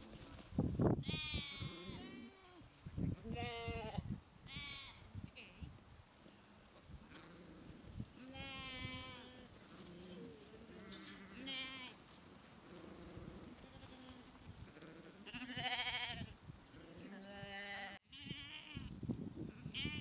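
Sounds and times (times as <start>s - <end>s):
lambs bleating: 1.0s - 2.6s, 3.3s - 5.0s, 8.2s - 12.0s, 13.1s - 16.3s, 17.0s - 18.9s
fainter lower lamb bleats: 1.0s - 2.7s, 3.3s - 5.1s, 8.2s - 10.2s, 10.8s - 12.0s, 13.5s - 16.3s, 16.9s - 18.9s, 19.6s - 20.0s.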